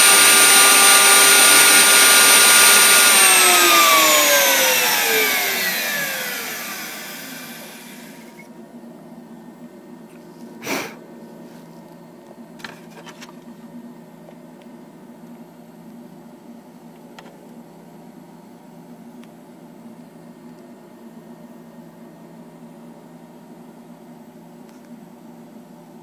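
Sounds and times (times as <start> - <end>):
router spindle whine spinning down: 0.0 - 8.5.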